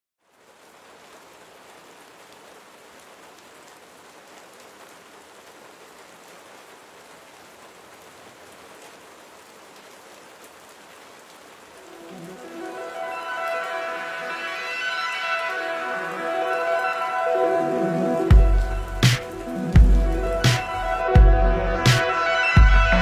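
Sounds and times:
rain falling: 0:00.2 - 0:23.0
music: 0:11.9 - 0:23.0.

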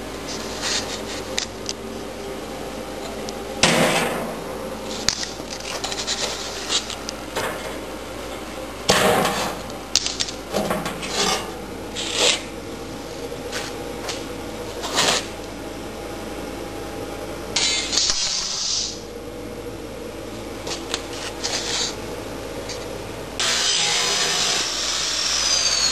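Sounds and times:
metal scraping: 0:10.5 - 0:12.5.

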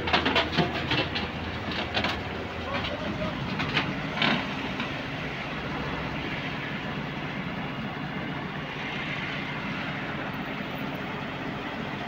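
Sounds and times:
diesel engine idling: 0:00.0 - 0:12.0.

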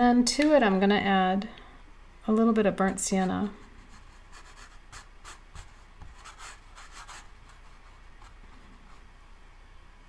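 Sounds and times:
brush strokes on paper: 0:03.2 - 0:09.1.

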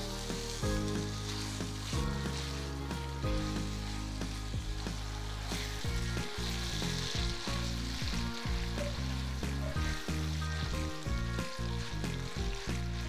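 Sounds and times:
background music: 0:00.0 - 0:13.0
meat sizzling in a frying pan: 0:00.0 - 0:13.0
spatula stirring in a pan: 0:00.0 - 0:13.0.

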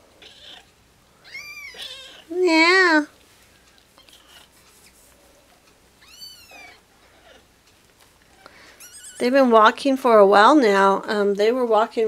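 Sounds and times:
faint kitten squeaks: 0:00.2 - 0:02.3, 0:04.0 - 0:04.6, 0:06.0 - 0:07.5, 0:08.3 - 0:09.4
kitten mewing: 0:00.2 - 0:02.3, 0:06.0 - 0:07.5.

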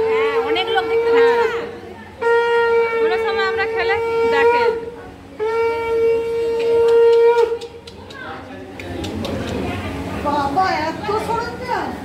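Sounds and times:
conch shell blasts: 0:02.2 - 0:07.8.

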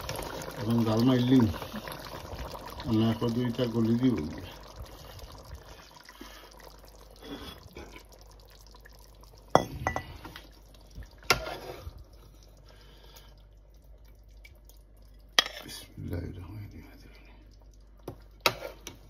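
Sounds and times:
kitchenware clatter: 0:09.6 - 0:10.2.

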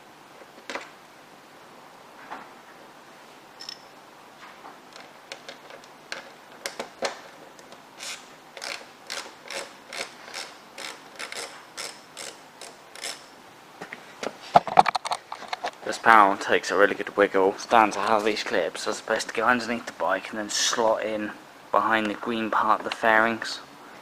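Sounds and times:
socket ratchet clicking: 0:08.0 - 0:13.3.

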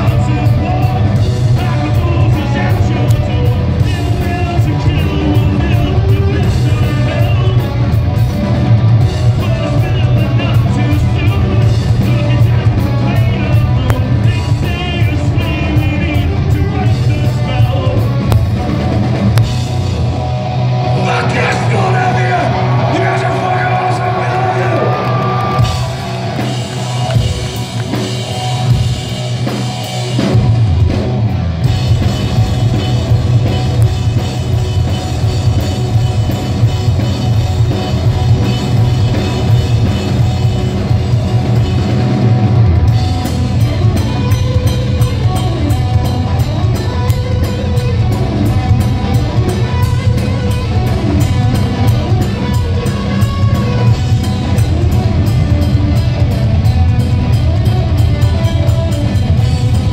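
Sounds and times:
bass guitar: 0:00.0 - 0:59.9
distorted electric guitars: 0:00.0 - 0:59.9
drum kit: 0:00.0 - 0:59.9.

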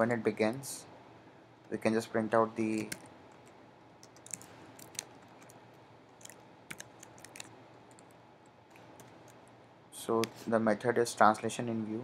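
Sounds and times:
computer keyboard keystrokes: 0:02.8 - 0:05.6, 0:06.2 - 0:08.1, 0:08.8 - 0:09.4.

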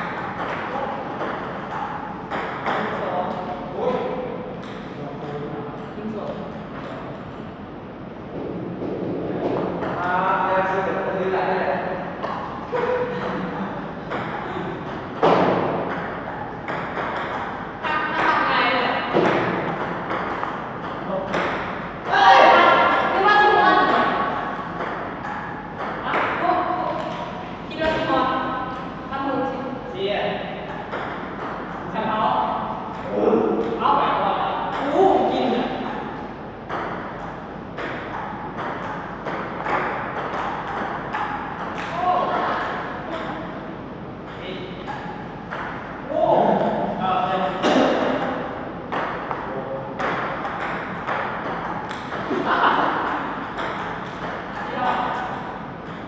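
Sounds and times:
table tennis ball hits: 0:00.0 - 0:07.6, 0:12.2 - 0:28.9, 0:30.6 - 0:31.9, 0:34.6 - 0:43.6, 0:44.3 - 0:46.0, 0:47.6 - 0:56.0.

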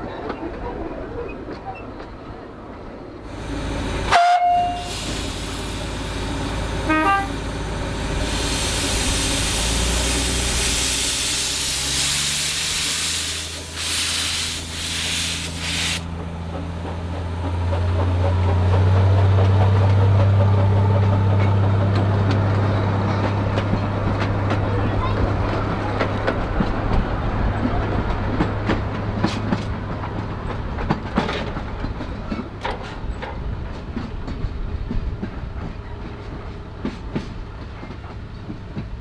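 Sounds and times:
loud hiss of steam: 0:03.3 - 0:07.0, 0:07.9 - 0:16.1
steam whistle toots: 0:04.1 - 0:05.1, 0:06.9 - 0:07.3
carriages rumbling past: 0:14.6 - 0:39.0.

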